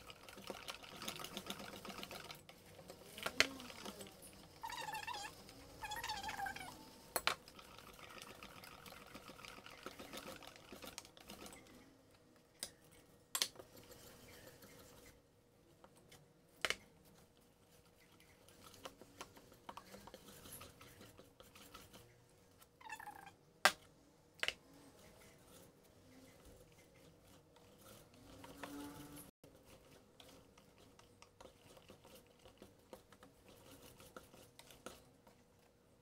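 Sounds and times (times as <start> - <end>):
whisk scraping batter: 0.0 - 6.8, 7.5 - 11.8, 13.6 - 15.2, 17.1 - 22.2, 25.0 - 35.7.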